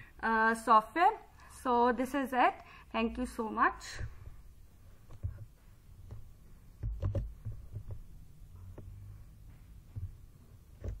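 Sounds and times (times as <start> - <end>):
soft low thumps: 4.0 - 11.0.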